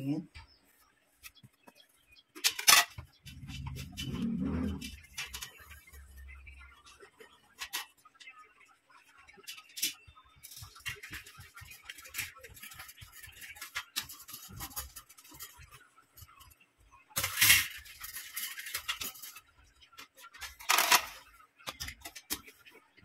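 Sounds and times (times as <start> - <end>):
small metallic clicks and rattles: 2.3 - 5.9, 7.5 - 8.3, 9.4 - 16.6, 17.2 - 22.7
cloth rubbing on wire grille: 3.3 - 6.3.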